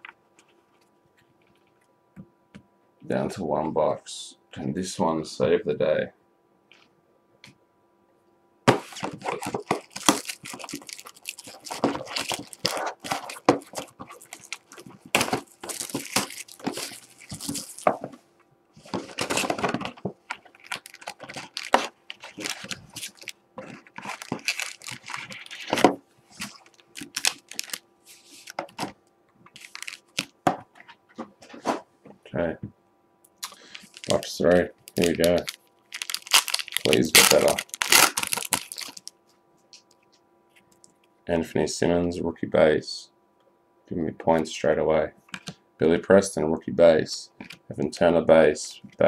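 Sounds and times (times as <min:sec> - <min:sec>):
card packs handled: 0:08.7 - 0:18.2, 0:18.8 - 0:31.8, 0:33.4 - 0:39.1
plastic wrap crackling and tearing: 0:08.8 - 0:18.2, 0:18.8 - 0:28.9, 0:29.5 - 0:30.4, 0:33.4 - 0:39.2.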